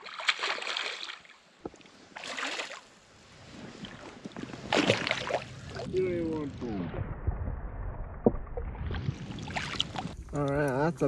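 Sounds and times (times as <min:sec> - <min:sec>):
fish splashing in water: 0:00.0 - 0:01.3, 0:04.7 - 0:05.8, 0:07.2 - 0:10.2.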